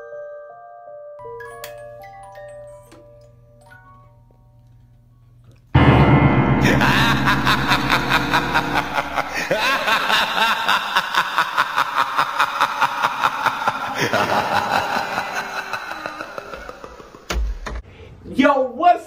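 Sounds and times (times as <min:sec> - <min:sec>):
spooky ringing music: 0:01.2 - 0:04.8, 0:05.8 - 0:11.8
cackling laugh: 0:06.6 - 0:17.3.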